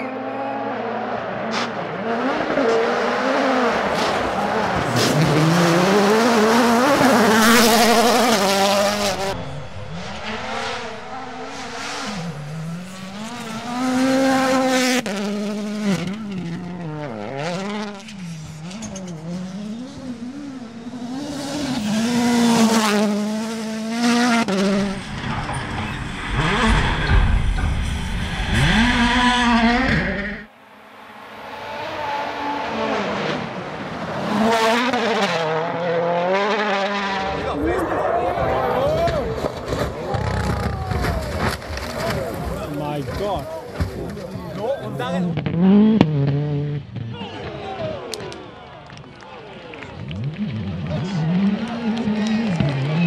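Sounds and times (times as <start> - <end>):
rally car engines revving: 0.0 - 53.0
low rumble: 7.3 - 14.8, 24.6 - 30.5.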